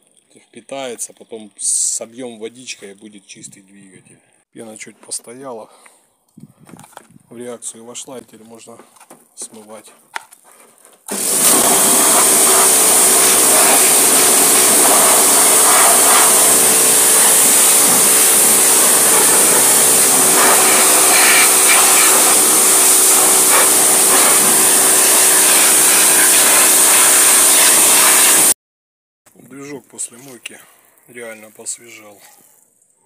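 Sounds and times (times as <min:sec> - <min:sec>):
pressure washer pump hum: 0:11.1 - 0:28.5
water jet hissing: 0:11.1 - 0:28.5.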